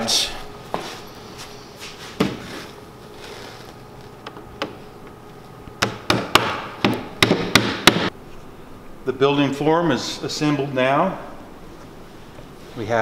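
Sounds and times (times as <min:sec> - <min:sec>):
knocks on wooden panels: 0:05.8 - 0:08.1.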